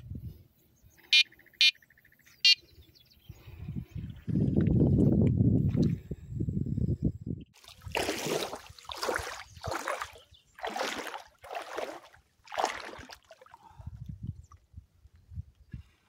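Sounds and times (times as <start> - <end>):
feet wading through water: 7.6 - 13.9.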